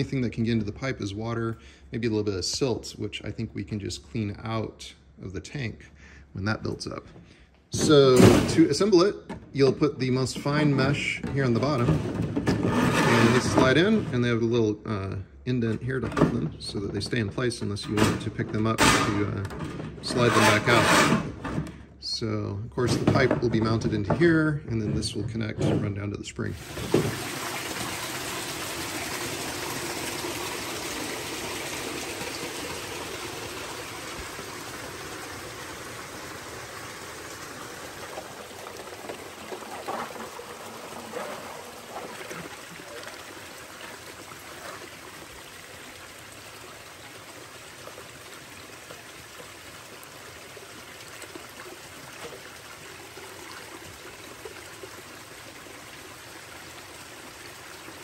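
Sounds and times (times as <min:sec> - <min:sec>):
water trickling over rocks: 0:26.6 - 0:58.0.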